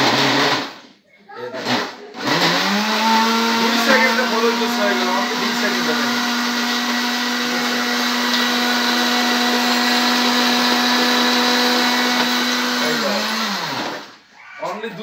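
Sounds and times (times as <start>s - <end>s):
blender motor whine: 0.0s - 0.8s, 1.6s - 14.3s
liquid churning in blender jar: 2.3s - 14.1s.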